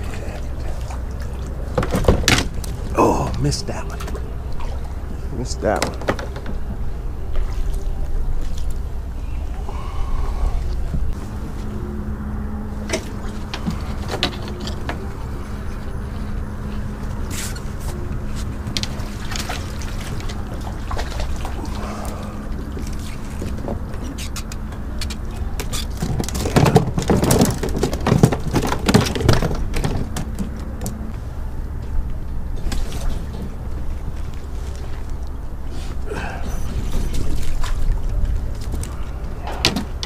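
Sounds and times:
water sloshing: 0:00.0 - 0:11.5, 0:12.8 - 0:31.0, 0:32.5 - 0:40.0
low hum: 0:00.0 - 0:40.0
fish splashing and knocks: 0:00.6 - 0:05.0, 0:05.7 - 0:06.7, 0:18.6 - 0:31.0.

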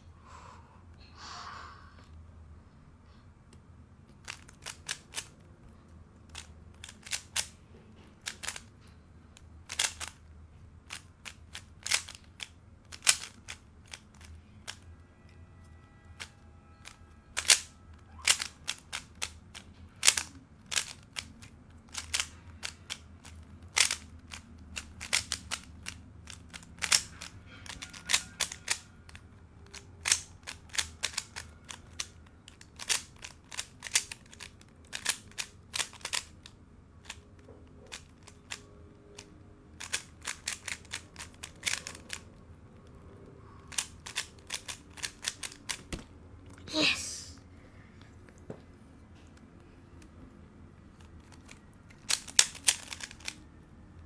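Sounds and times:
speed cube plastic clacking: 0:04.0 - 0:05.5, 0:06.2 - 0:15.0, 0:16.1 - 0:38.6, 0:39.2 - 0:43.0, 0:43.6 - 0:46.1, 0:50.8 - 0:53.4.

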